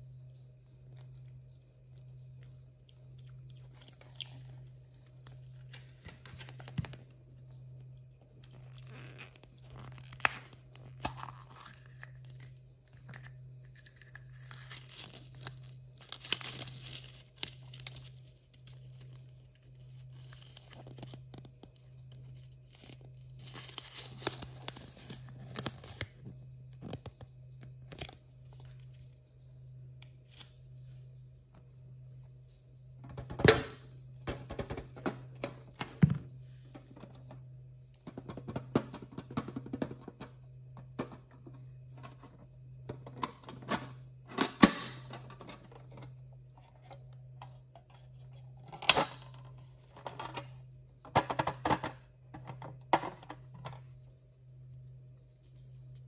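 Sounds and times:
steady low hum: 0:00.0 - 0:56.0
wrappers crinkling and tearing: 0:08.6 - 0:12.0, 0:14.3 - 0:21.4, 0:22.7 - 0:26.1.

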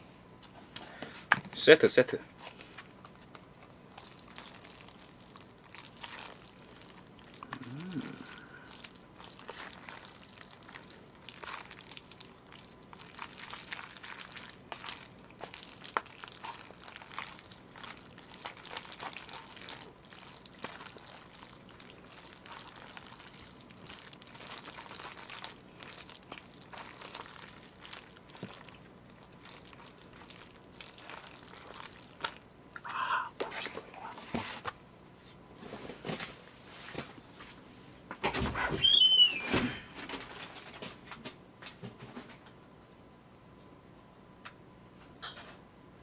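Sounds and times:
noodles squelching in sauce: 0:03.6 - 0:33.0.

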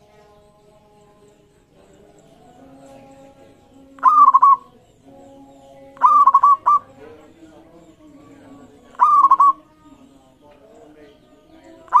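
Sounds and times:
dove cooing: 0:01.2 - 0:05.0, 0:05.9 - 0:10.2, 0:11.7 - 0:12.0.

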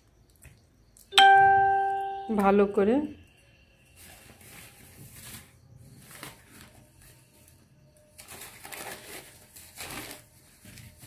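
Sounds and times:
newspaper rustling: 0:04.0 - 0:07.5, 0:08.2 - 0:11.0.

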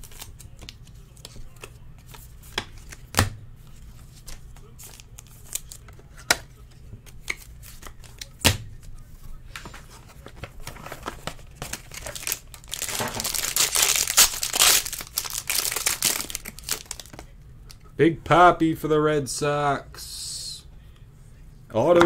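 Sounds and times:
cards and plastic sleeves rustling: 0:00.0 - 0:17.8
foil wrapper crinkling and tearing: 0:10.7 - 0:17.2.

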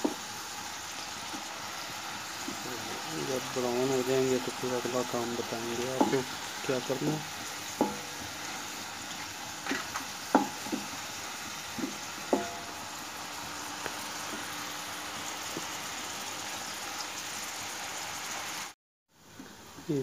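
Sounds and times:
onions sizzling in a pan: 0:00.0 - 0:20.0
wooden spoon knocking pan: 0:05.4 - 0:09.0, 0:09.6 - 0:12.8.

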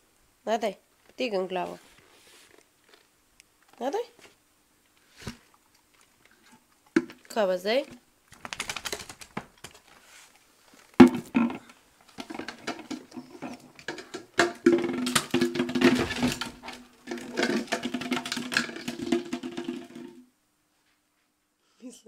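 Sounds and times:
plastic container scraping on wood floor: 0:12.2 - 0:20.2.

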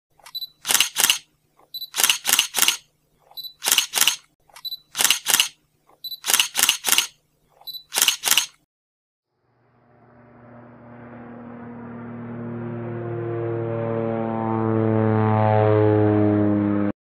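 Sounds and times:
camera shutter clicks: 0:00.2 - 0:02.9, 0:03.6 - 0:05.6, 0:06.2 - 0:07.2, 0:07.8 - 0:08.6
short high beep: 0:01.7 - 0:02.0.

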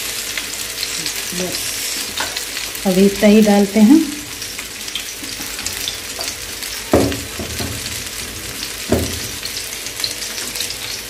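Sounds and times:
fish sizzling in oil: 0:00.0 - 0:11.0
dull knocks: 0:06.9 - 0:07.9, 0:08.9 - 0:09.4.

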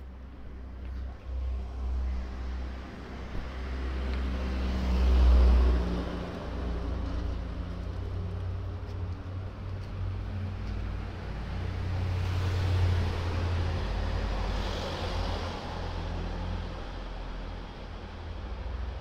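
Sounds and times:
steady low traffic rumble: 0:00.0 - 0:19.0
car passing close: 0:01.4 - 0:07.7.

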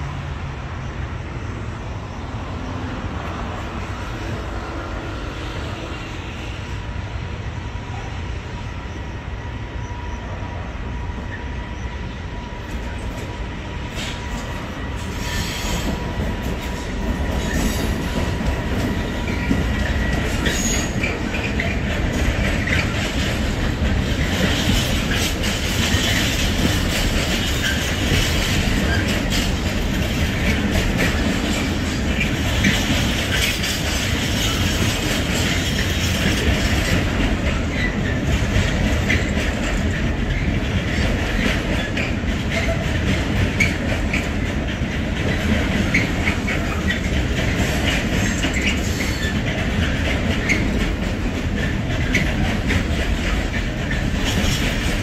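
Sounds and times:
train wagon wheels rumbling: 0:00.0 - 0:55.0
wheels clacking over rail joints: 0:12.6 - 0:55.0
high wheel squeal: 0:13.9 - 0:16.0, 0:19.3 - 0:21.8, 0:48.2 - 0:49.4.

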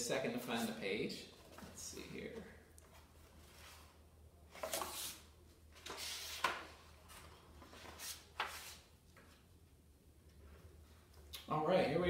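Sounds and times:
book pages flipping: 0:04.5 - 0:09.4.

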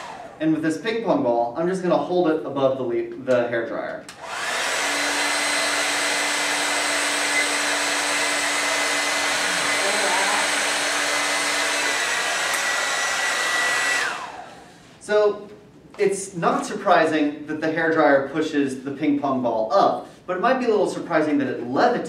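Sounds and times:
hair dryer blowing: 0:00.0 - 0:00.4, 0:04.1 - 0:15.0.

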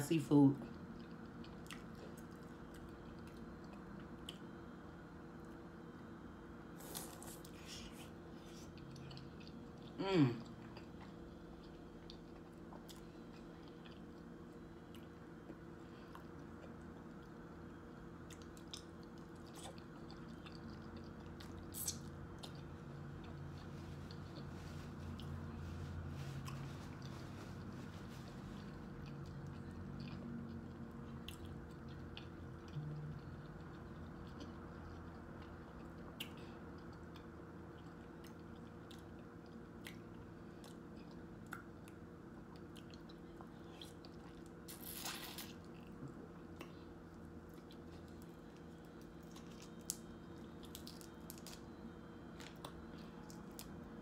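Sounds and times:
steady low hum: 0:00.0 - 0:54.0
person chewing: 0:00.7 - 0:04.8, 0:06.7 - 0:53.8
crackle: 0:47.7 - 0:51.6.

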